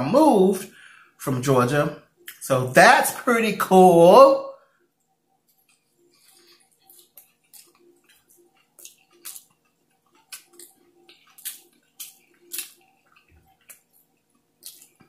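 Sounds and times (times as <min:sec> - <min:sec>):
person chewing food: 0:05.0 - 0:15.0.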